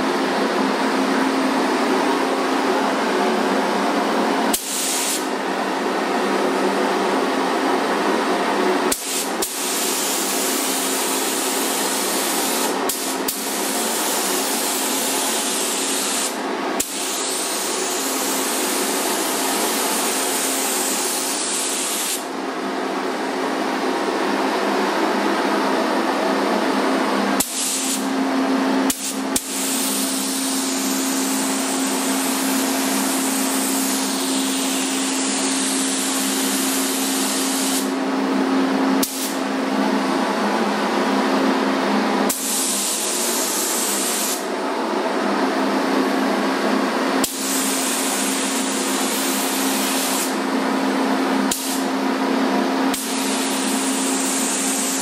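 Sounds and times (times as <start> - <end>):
paint spray gun hissing: 4.5 - 5.3, 8.9 - 22.3, 27.4 - 28.0, 28.9 - 38.0, 39.0 - 39.4, 42.3 - 44.4, 47.2 - 50.4, 51.5 - 51.9, 52.9 - 55.0.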